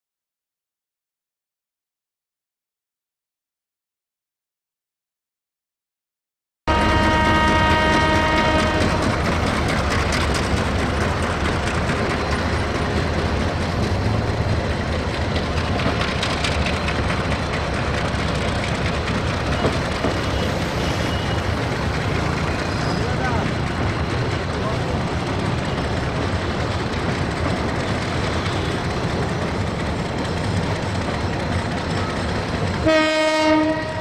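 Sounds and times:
train horn: 0:06.7 - 0:09.3, 0:32.8 - 0:34.0
freight train rolling past: 0:06.7 - 0:34.0.

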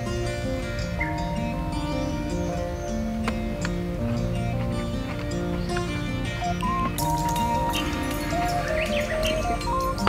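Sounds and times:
music of sustained notes: 0:00.0 - 0:10.0.

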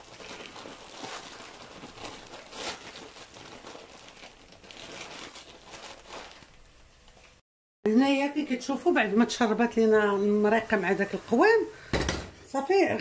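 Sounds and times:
meat sizzling in a pot: 0:09.2 - 0:12.0.

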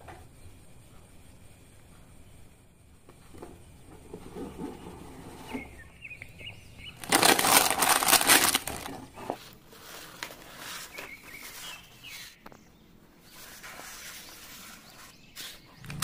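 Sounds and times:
paper rustling and crackling: 0:07.0 - 0:12.3.

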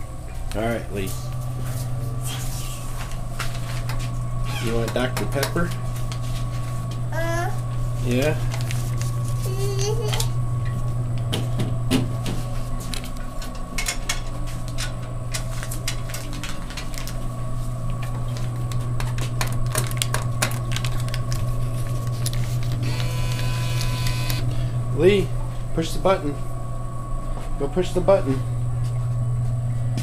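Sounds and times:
vending machine humming: 0:00.0 - 0:30.0
bill acceptor whirring: 0:02.9 - 0:05.4, 0:22.4 - 0:25.3.

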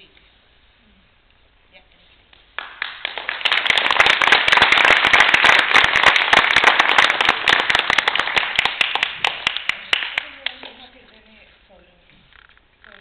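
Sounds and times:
audience applauding: 0:02.6 - 0:10.8
sharp hand claps close by: 0:02.6 - 0:10.8.

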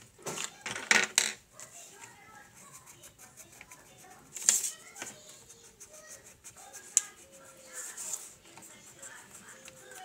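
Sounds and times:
pencil scribbling on paper: 0:02.0 - 0:10.0.

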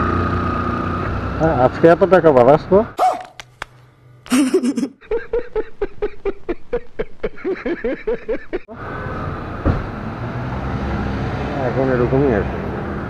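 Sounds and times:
street traffic: 0:00.0 - 0:03.9, 0:08.7 - 0:13.0
short cry: 0:03.0 - 0:03.4
man laughing loudly: 0:04.3 - 0:08.8.

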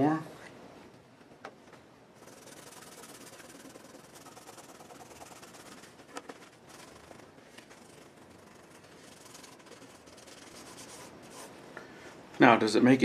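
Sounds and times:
paper towel scrubbing: 0:02.2 - 0:11.6.

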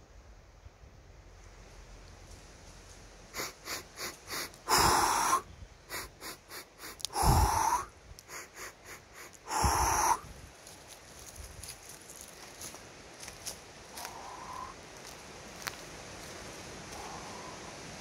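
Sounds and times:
man breathing out loudly: 0:03.3 - 0:10.3
man sniffing in: 0:03.3 - 0:10.3, 0:14.0 - 0:14.8.

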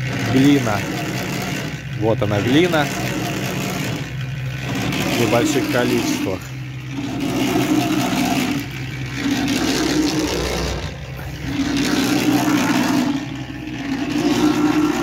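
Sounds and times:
mixer motor hum: 0:00.0 - 0:15.0
mortar churning in drum: 0:00.0 - 0:15.0.

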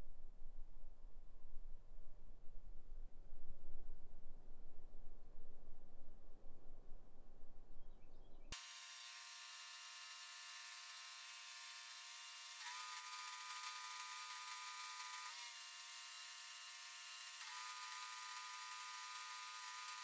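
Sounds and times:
welding arc buzzing and crackling: 0:08.6 - 0:20.0.

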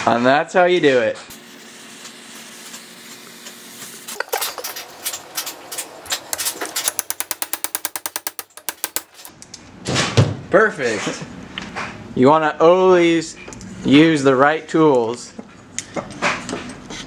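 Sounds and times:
torch hissing: 0:01.3 - 0:07.0
ratchet wrench clicking: 0:06.3 - 0:09.3.

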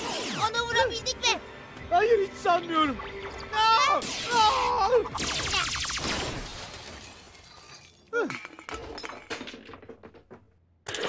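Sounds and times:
crackling beam blast: 0:05.2 - 0:06.6.

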